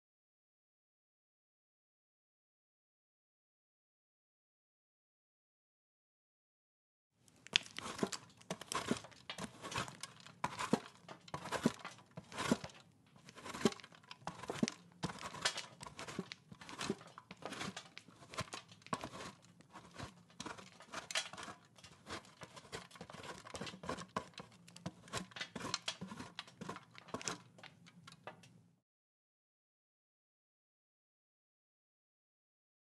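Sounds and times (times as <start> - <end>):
cheese grating on metal grater: 7.5 - 27.5.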